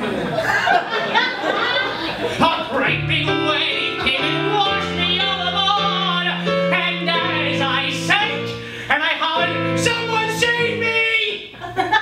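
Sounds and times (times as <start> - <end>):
digital keyboard piano: 2.2 - 11.2
man singing show tune: 2.4 - 11.6.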